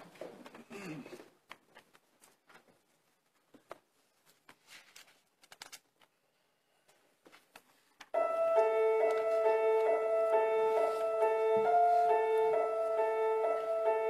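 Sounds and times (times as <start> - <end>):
faint clicks and rustles: 0.0 - 6.2.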